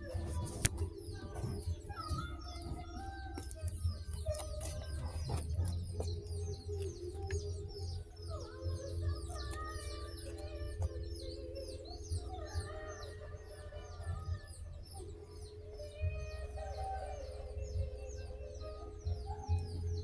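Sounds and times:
background music with held notes: 0.0 - 20.0
small birds chirping: 0.0 - 20.0.

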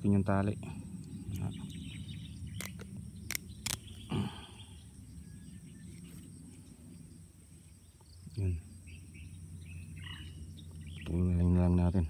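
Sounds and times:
faint insect hum: 0.0 - 12.0
knife clicks: 2.6 - 3.9.

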